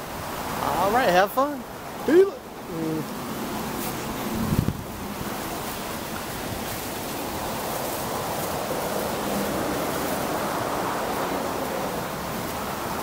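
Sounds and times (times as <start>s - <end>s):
wind on microphone: 3.3s - 13.0s.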